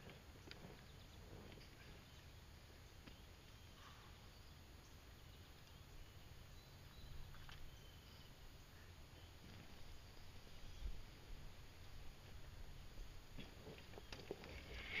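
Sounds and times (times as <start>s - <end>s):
faint chirps and clicks: 3.0s - 11.0s.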